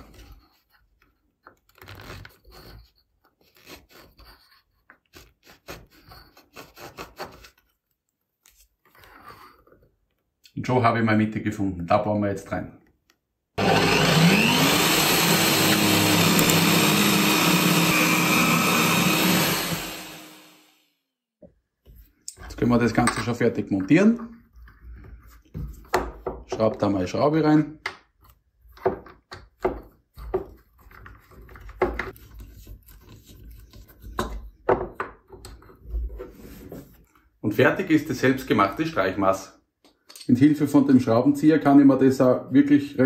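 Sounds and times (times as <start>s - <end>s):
screw rubbing in wood: 1.6s - 7.8s, 13.6s - 20.2s
drill press motor starting: 13.6s - 20.8s
screwdriver knocks and scrapes: 15.5s - 17.1s.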